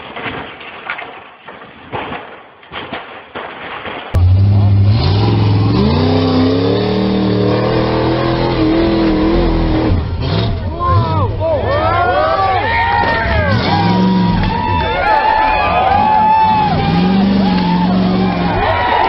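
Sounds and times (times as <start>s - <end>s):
knocks and rattles: 0.0s - 4.4s
buggy engine revving hard: 4.2s - 14.8s, 15.4s - 19.0s.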